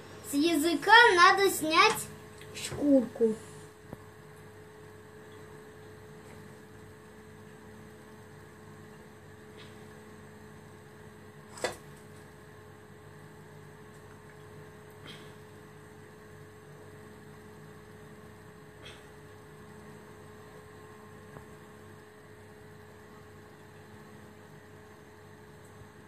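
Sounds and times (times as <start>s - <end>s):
low electrical hum: 0.0s - 26.0s.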